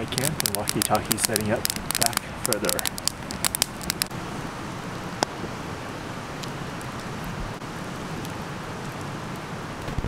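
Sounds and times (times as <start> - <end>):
fire snapping and popping: 0.0 - 4.2
campfire burning: 0.0 - 10.0.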